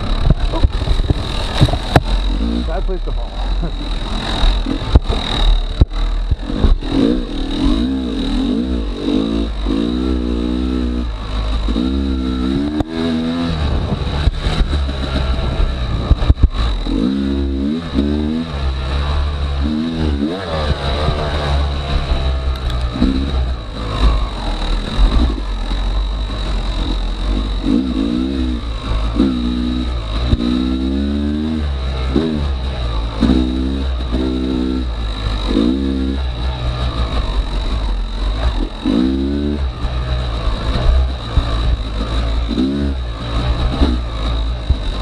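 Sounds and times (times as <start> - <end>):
knocks and clatter: 0.0 - 2.6, 3.9 - 7.7
dirt bike engine revving: 0.0 - 45.0.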